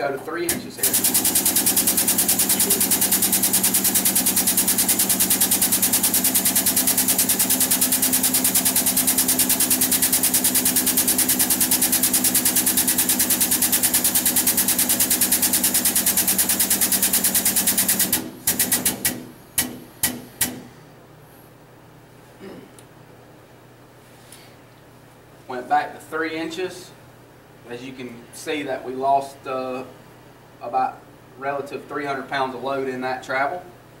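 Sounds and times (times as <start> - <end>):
power tool pulsing: 0.5 - 20.6.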